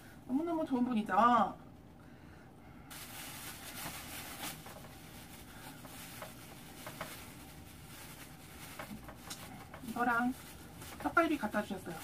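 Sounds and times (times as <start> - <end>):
plastic bag crinkling: 2.9 - 12.0.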